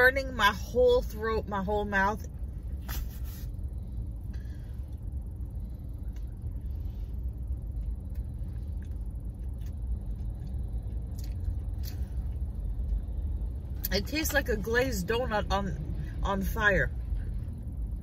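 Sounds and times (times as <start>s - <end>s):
car interior rumble: 0.0s - 18.0s
chewing clicks: 7.6s - 13.9s.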